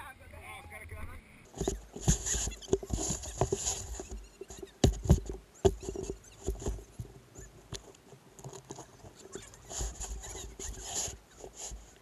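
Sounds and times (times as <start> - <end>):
scraping and rustling of sand: 1.5 - 5.2, 5.8 - 12.0
shoe knocking on wooden board: 4.8 - 6.8.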